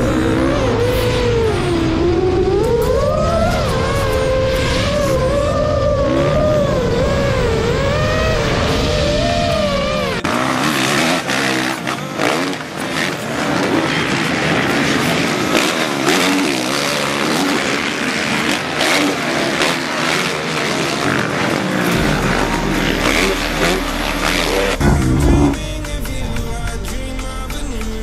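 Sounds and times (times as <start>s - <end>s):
dirt bike engines revving: 0.0s - 28.0s
steady low rumble: 21.9s - 28.0s.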